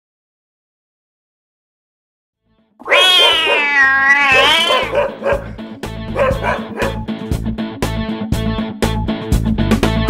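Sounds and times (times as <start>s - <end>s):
cat yowling: 2.8s - 7.0s.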